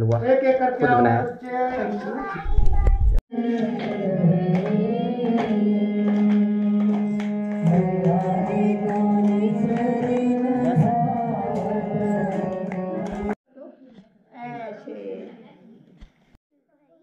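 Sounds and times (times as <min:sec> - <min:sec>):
person singing: 0:03.3 - 0:13.4.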